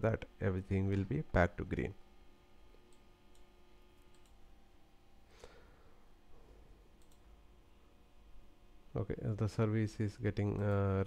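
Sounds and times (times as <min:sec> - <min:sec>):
faint computer mouse clicks: 0:02.8 - 0:04.4, 0:07.0 - 0:07.2.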